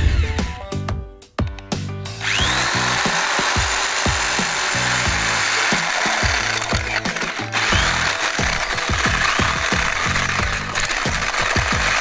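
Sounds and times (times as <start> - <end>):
electric drill boring plastic: 2.2 - 12.0.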